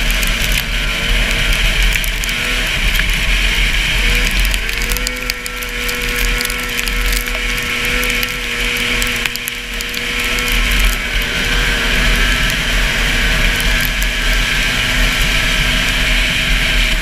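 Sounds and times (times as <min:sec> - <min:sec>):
snowmobile engine at high revs: 0:00.0 - 0:17.0
small clicks: 0:04.1 - 0:11.0.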